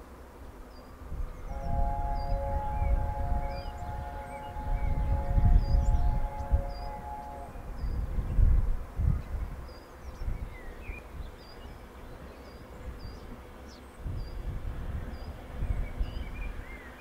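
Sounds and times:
low uneven rumble: 0:00.5 - 0:09.7
bird lower chirps: 0:01.4 - 0:08.0.

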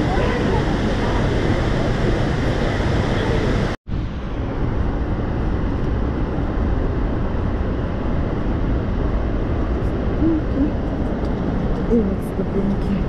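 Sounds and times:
waterfall roaring: 0:00.0 - 0:05.9.

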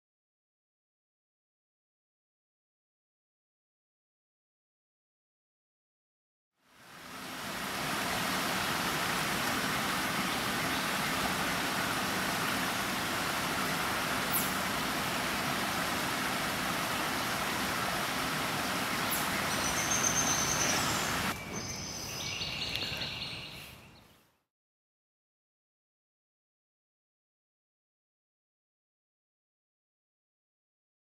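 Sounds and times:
stream splashing over rocks: 0:06.7 - 0:21.4
small bird singing: 0:18.6 - 0:24.4.

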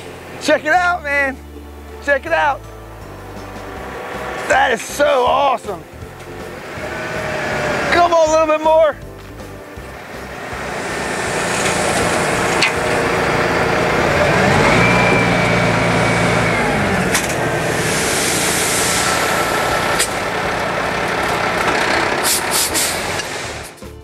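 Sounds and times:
diesel truck engine running: 0:00.0 - 0:24.0
dirt sliding rush: 0:03.3 - 0:23.8
air hiss: 0:17.6 - 0:20.2, 0:22.2 - 0:23.8.

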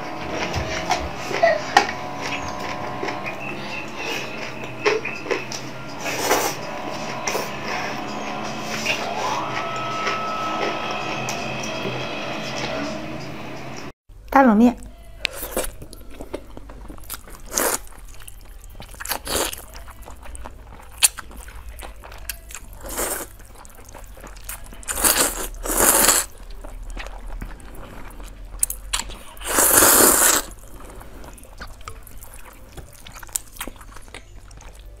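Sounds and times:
chewing and mouth clicks: 0:15.2 - 0:35.0
person slurping noodles: 0:24.9 - 0:26.3, 0:29.4 - 0:30.6.

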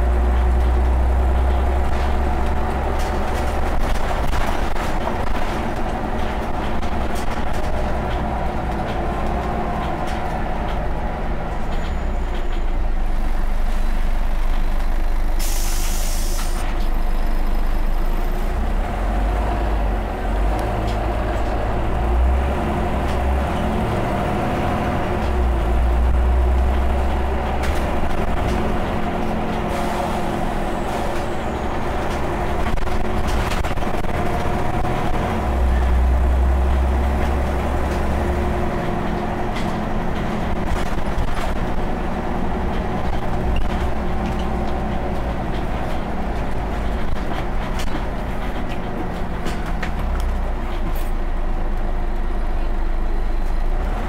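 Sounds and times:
bus engine rumbling: 0:00.0 - 0:54.0
compressed air hissing: 0:15.4 - 0:16.6.

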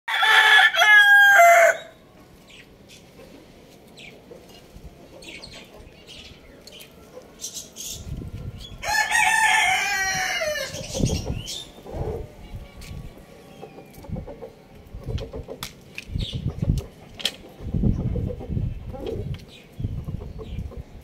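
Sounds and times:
rooster crowing: 0:00.1 - 0:02.0, 0:08.8 - 0:10.8.

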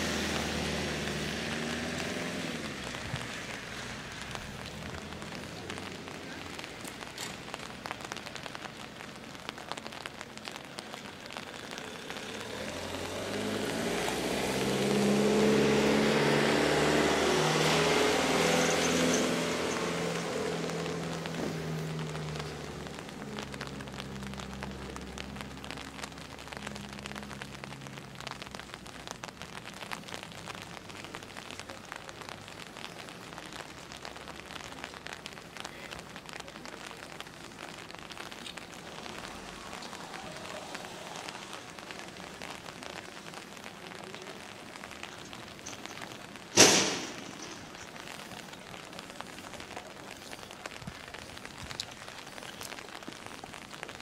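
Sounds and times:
light rain pattering: 0:00.0 - 0:54.0
sharp bang: 0:46.6 - 0:47.4.

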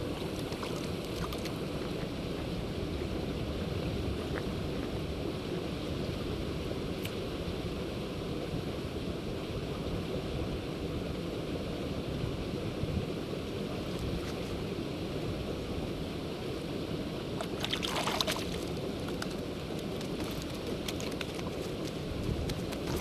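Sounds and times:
crackles and clicks on ice: 0:17.7 - 0:23.0
wind buffeting microphone: 0:18.6 - 0:23.0.

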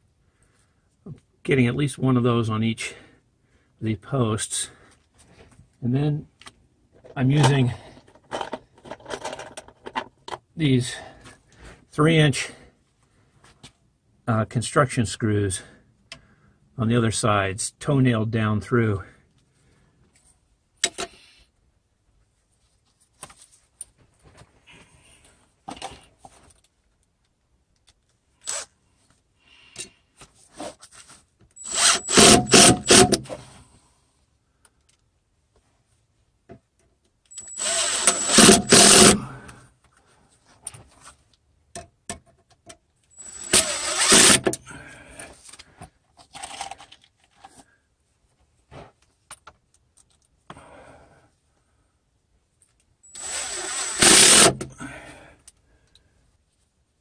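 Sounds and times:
small clicks and handling knocks: 0:25.7 - 0:28.2, 0:34.6 - 0:35.6, 0:40.6 - 0:43.2, 0:49.0 - 0:50.6
power driver driving screws: 0:31.6 - 0:33.3, 0:37.3 - 0:39.2, 0:43.2 - 0:44.6, 0:53.1 - 0:54.7.

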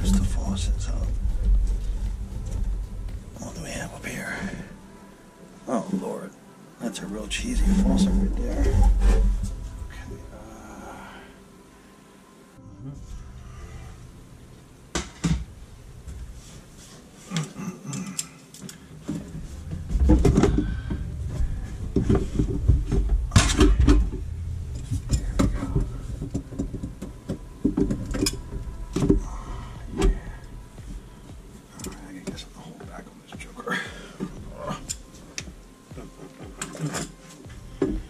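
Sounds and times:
low rumbling handling noise: 0:00.0 - 0:05.3, 0:07.2 - 0:11.5, 0:19.0 - 0:32.2
rustling: 0:00.0 - 0:06.0, 0:18.8 - 0:32.3.

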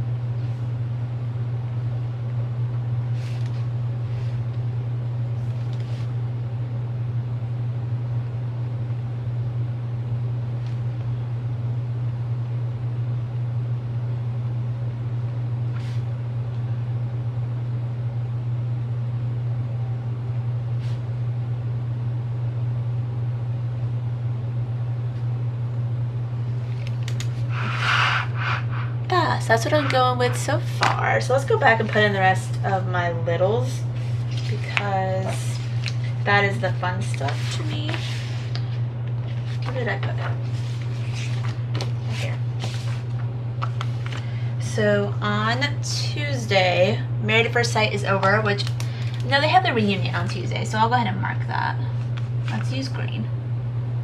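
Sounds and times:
low background hum: 0:00.0 - 0:54.0
pages rustling: 0:03.2 - 0:04.4, 0:05.4 - 0:06.1, 0:33.9 - 0:44.3.

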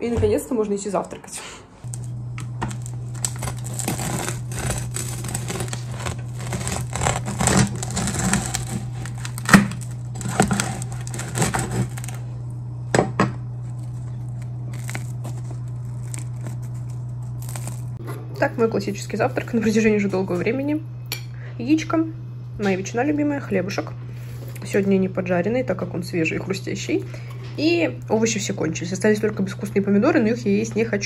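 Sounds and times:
low steady hum: 0:00.0 - 0:31.0
knife sawing crusty bread: 0:03.2 - 0:12.2.

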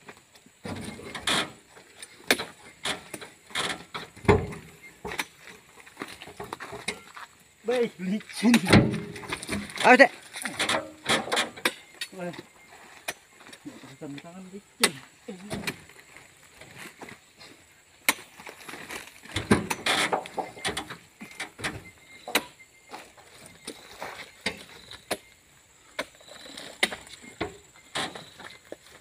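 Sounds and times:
fruit bunches thudding into truck bed: 0:02.2 - 0:05.3, 0:08.4 - 0:11.8, 0:18.0 - 0:23.1.

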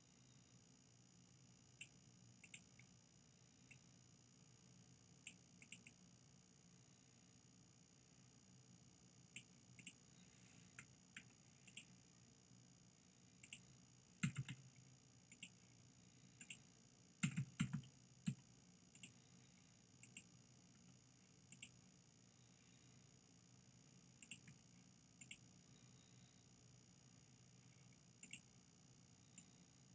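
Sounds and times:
faint steady hum: 0:00.0 - 0:29.9
mouse and keyboard clicks: 0:13.4 - 0:14.6.

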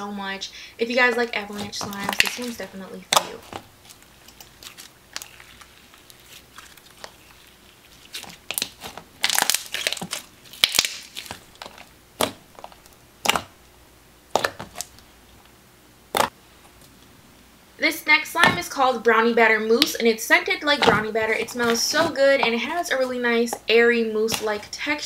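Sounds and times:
slime crackling and popping: 0:01.5 - 0:13.5.

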